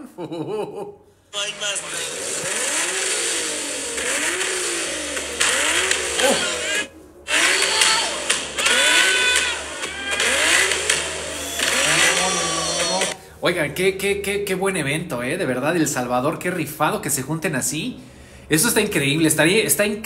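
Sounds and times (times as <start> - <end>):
car engine revving: 1.4 - 13.2.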